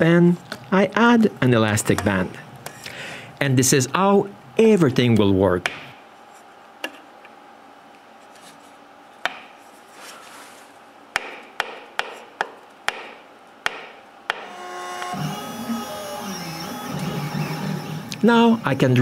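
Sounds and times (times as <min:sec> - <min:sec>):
machine motors whirring: 0:14.5 - 0:19.0.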